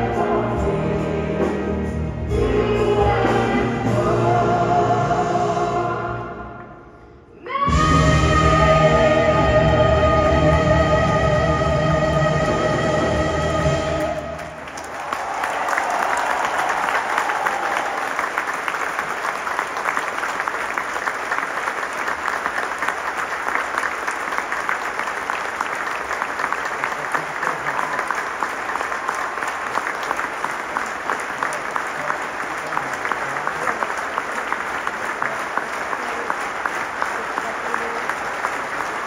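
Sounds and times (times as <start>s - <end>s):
large audience applauding: 14.0s - 39.0s.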